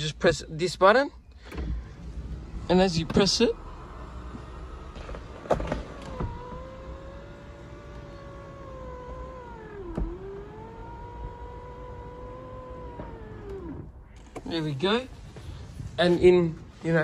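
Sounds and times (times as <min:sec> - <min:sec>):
electric roof motor whining: 0:01.8 - 0:14.4.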